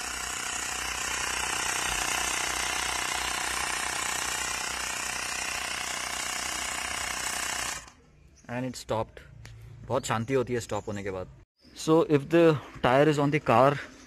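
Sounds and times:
electric tyre inflator running: 0.0 - 8.0.

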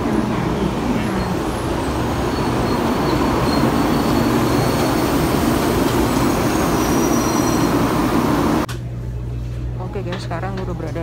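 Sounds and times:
train wheels rumbling: 0.0 - 8.7.

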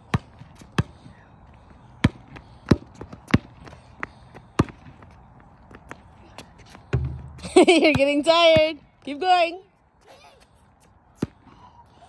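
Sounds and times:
basketball bouncing on concrete: 0.0 - 1.2, 2.0 - 5.1, 6.8 - 9.2.

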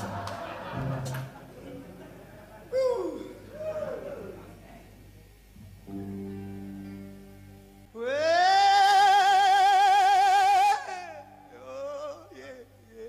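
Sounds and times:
man singing: 8.0 - 13.0.

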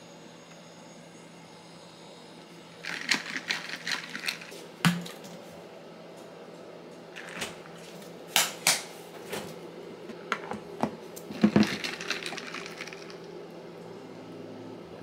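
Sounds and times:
clatter of objects: 11.3 - 13.2.

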